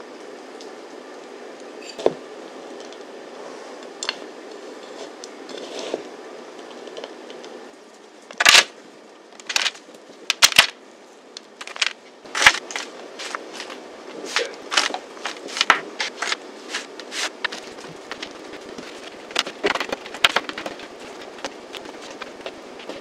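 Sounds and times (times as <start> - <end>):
granola dropping on trays: 8.3 - 8.8, 9.4 - 10.8, 11.6 - 23.0.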